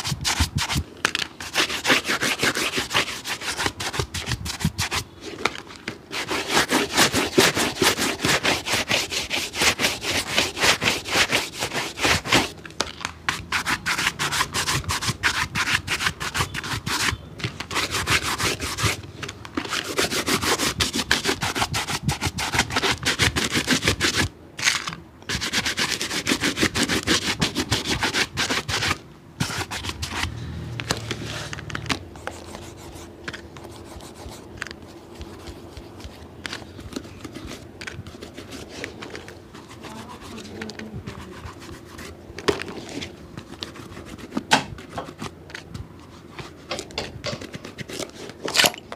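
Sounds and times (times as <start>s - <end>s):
rubbing strokes on a shoe: 0.0s - 0.8s, 1.4s - 5.3s, 6.1s - 12.5s, 13.3s - 19.0s, 19.7s - 24.3s, 25.3s - 30.4s, 32.3s - 42.2s, 42.8s - 44.5s.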